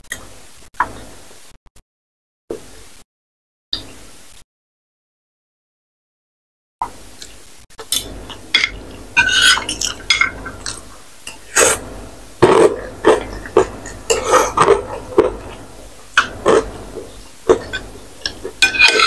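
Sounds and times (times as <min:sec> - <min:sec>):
slurping and chewing noodles: 0:09.3 - 0:19.0
cutlery clinking on a plate: 0:17.6 - 0:19.0.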